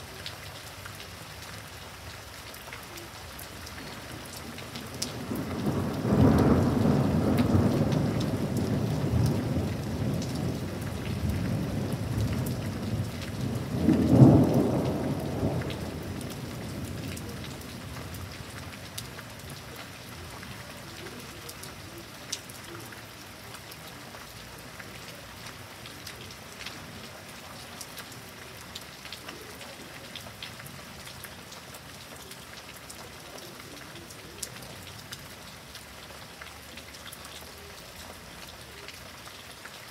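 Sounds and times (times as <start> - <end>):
steady rain: 0.0 - 39.9
thunder rumbling: 5.1 - 18.8.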